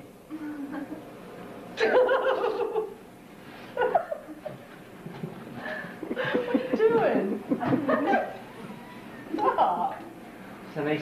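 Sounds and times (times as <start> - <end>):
people laughing: 1.8 - 3.0, 3.8 - 4.6, 5.6 - 10.0
people talking: 6.3 - 8.4, 9.4 - 10.1.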